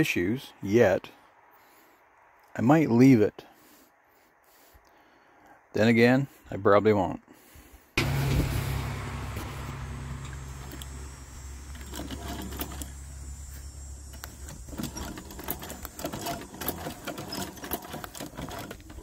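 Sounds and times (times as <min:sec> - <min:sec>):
sewing machine motor humming: 0:08.0 - 0:19.0.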